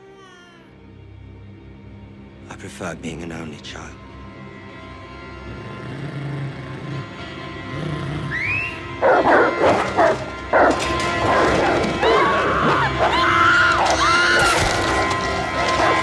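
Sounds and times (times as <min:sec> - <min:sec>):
dramatic music score: 0:00.0 - 0:16.0
hounds barking and snarling: 0:05.6 - 0:16.0
high arching cries: 0:11.6 - 0:16.0.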